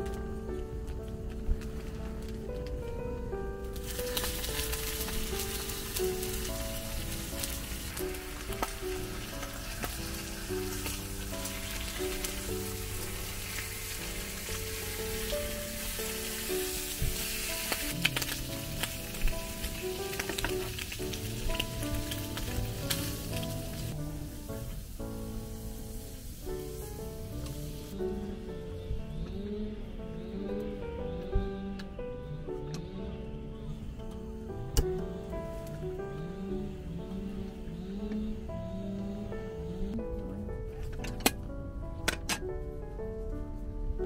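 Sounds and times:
background music: 0:00.0 - 0:44.0
food sizzling in a pan: 0:03.8 - 0:28.0.

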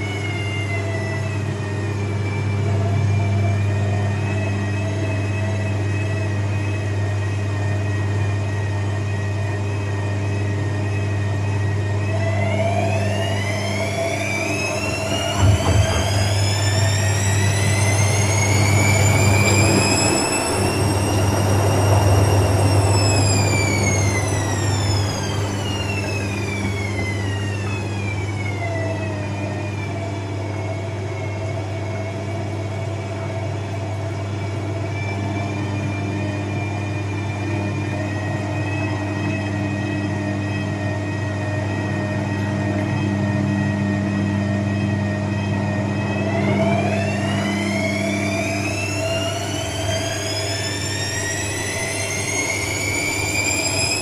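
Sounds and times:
washing machine low hum: 0:00.0 - 0:54.0
washing machine motor whine: 0:00.0 - 0:54.0
washing machine knocks: 0:14.7 - 0:18.2.

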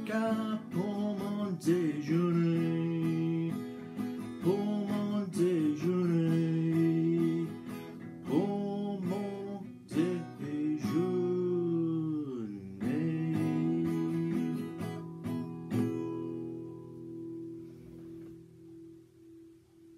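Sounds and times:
acoustic guitar strumming: 0:00.0 - 0:19.9.

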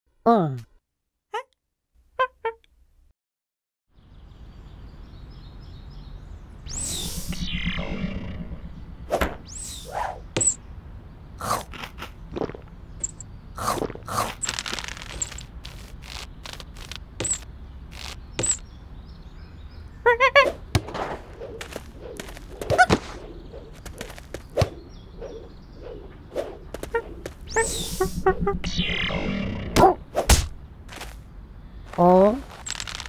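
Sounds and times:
repeated rising tones: 0:06.5 - 0:10.6, 0:24.5 - 0:30.6.

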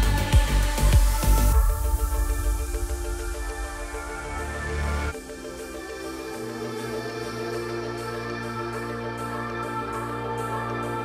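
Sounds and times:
thumping electronic beat: 0:00.0 - 0:06.9
held synth notes with pulsing tone: 0:00.0 - 0:11.0.

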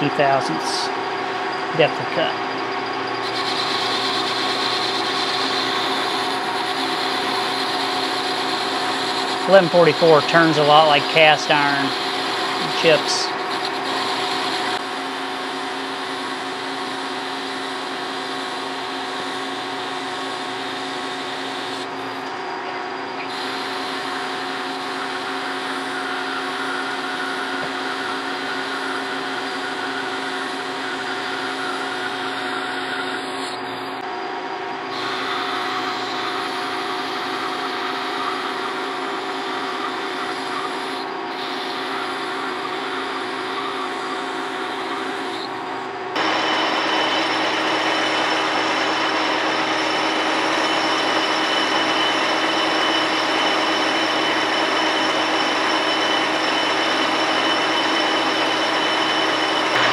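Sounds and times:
lathe drive whine: 0:00.0 - 0:59.9
hiss of metal cutting: 0:03.2 - 0:14.8, 0:34.9 - 0:45.5.

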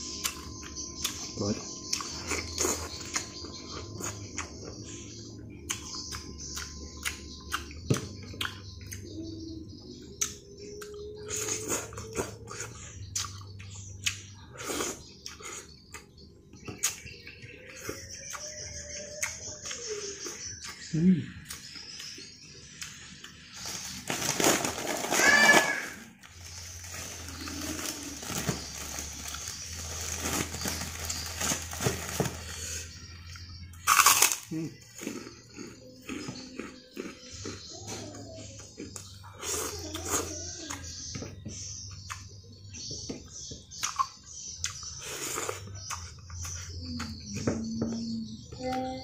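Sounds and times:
plastic bag crinkling: 0:23.6 - 0:32.8
wet chewing: 0:43.8 - 0:47.4
lip smacks: 0:45.4 - 0:46.2
sharp mouth clicks: 0:45.9 - 0:46.2.

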